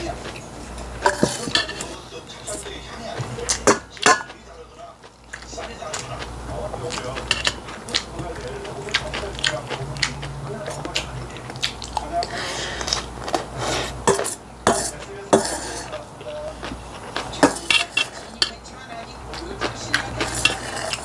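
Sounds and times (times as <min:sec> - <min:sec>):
metal spoon scraping steel bowl: 0:14.0 - 0:16.0, 0:20.0 - 0:21.0.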